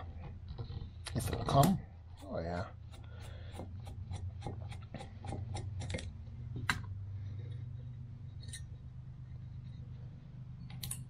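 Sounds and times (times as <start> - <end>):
low steady hum: 0.0 - 11.0
metallic clicking of hand tool: 10.7 - 11.0.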